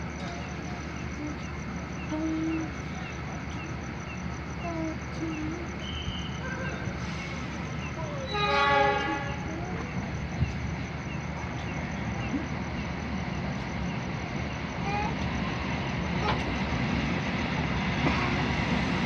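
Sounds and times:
train rumbling past: 0:00.0 - 0:19.0
diesel locomotive horn blast: 0:08.3 - 0:09.8.

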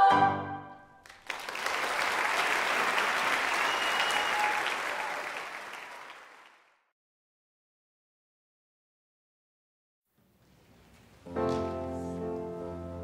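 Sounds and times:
audience applauding: 0:01.0 - 0:06.9.

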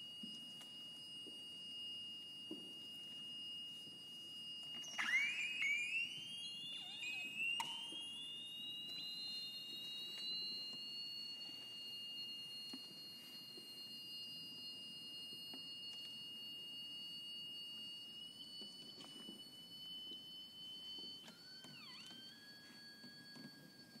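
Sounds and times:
steady high pure tones: 0:00.0 - 0:24.0
clicks: 0:04.7 - 0:08.2
rising tone glide: 0:04.8 - 0:08.4.

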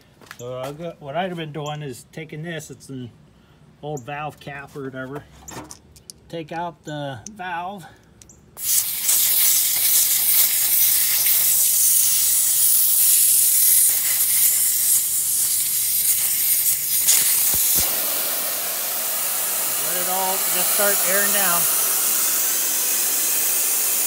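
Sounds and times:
air hissing out of tyre valve: 0:08.6 - 0:24.0.

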